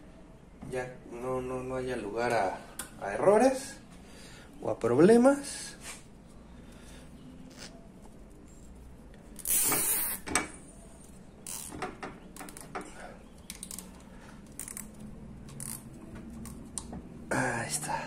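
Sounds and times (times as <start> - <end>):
zip tie clicking: 13.4 - 16.9
zip tie rasping through lock: 13.5 - 16.7.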